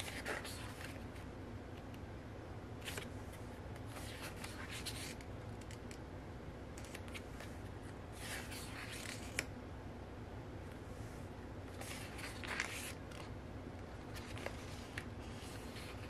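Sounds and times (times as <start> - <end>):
paper pages rustling: 0.0 - 1.0, 2.8 - 5.8, 6.8 - 7.5, 8.2 - 9.5, 11.7 - 13.3, 14.0 - 16.0
faint low hum: 0.0 - 16.0.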